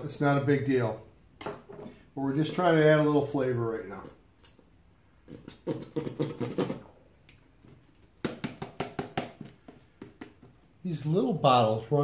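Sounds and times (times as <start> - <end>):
squeeze bottle sputtering and squelching: 5.2 - 7.0.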